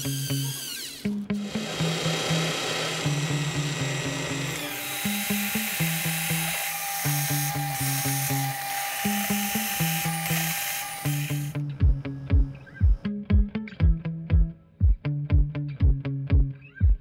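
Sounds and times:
drill press cutting steel: 0:00.0 - 0:11.5
background music with plucked bass: 0:09.4 - 0:17.0.

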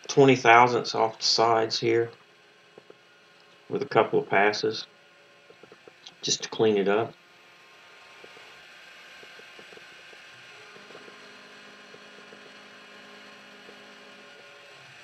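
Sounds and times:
milling machine humming: 0:05.4 - 0:15.0.

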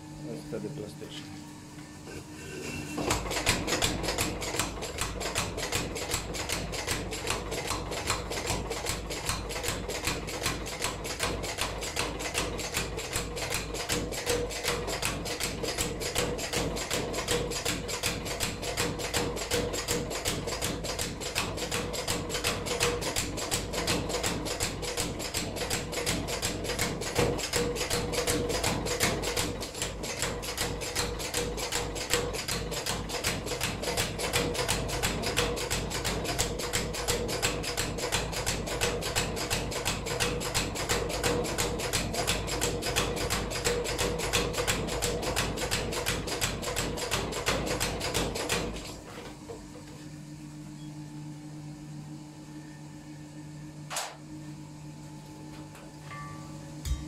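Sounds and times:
steady low hum: 0:00.0 - 0:06.3, 0:49.4 - 0:57.0.

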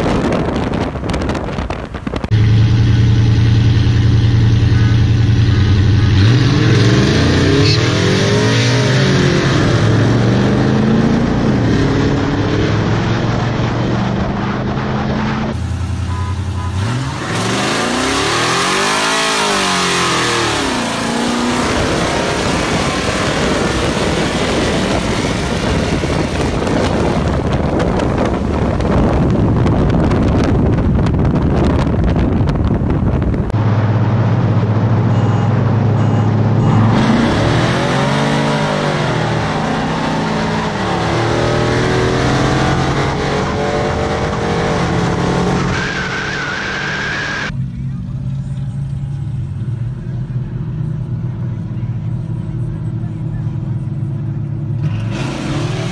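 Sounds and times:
wind rush at speed: 0:00.0 - 0:02.6, 0:16.8 - 0:35.4
car engines accelerating hard: 0:00.0 - 0:55.9.

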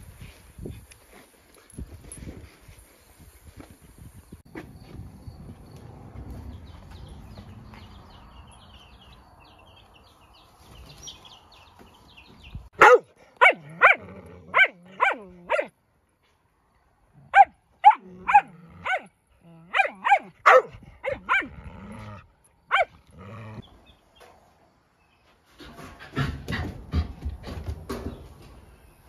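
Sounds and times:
dog barking: 0:12.8 - 0:15.7, 0:17.3 - 0:21.6, 0:22.7 - 0:23.0.

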